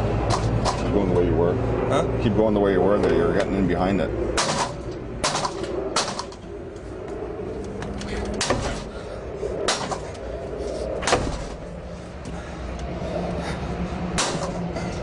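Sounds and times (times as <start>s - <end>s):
pry bar clanking on metal: 4.4s - 6.4s, 8.4s - 8.9s, 11.0s - 11.6s, 14.2s - 14.6s.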